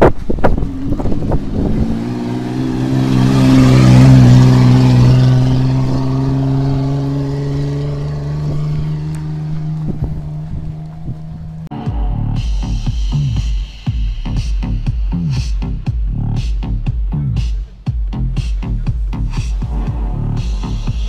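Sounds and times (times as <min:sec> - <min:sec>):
off-road vehicle driving past: 0:00.0 - 0:12.8.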